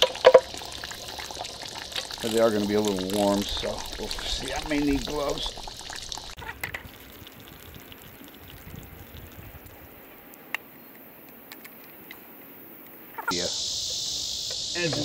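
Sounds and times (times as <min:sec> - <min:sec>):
high buzz of insects: 0:09.7 - 0:15.0.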